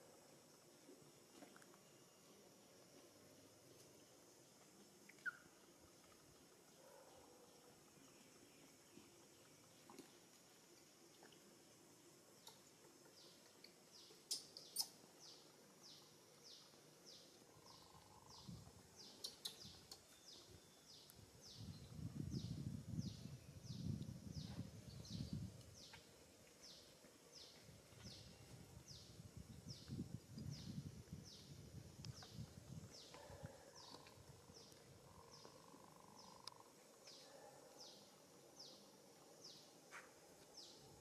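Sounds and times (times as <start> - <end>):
small animal chirping: 5.1 - 5.5, 14.2 - 15.0, 17.5 - 20.5.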